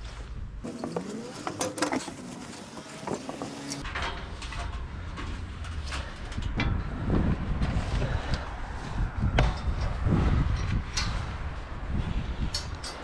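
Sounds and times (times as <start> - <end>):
knocks and clanks on scaffolding tubes: 0.6 - 7.8, 9.3 - 11.3
wind rumble on microphone: 4.4 - 13.0.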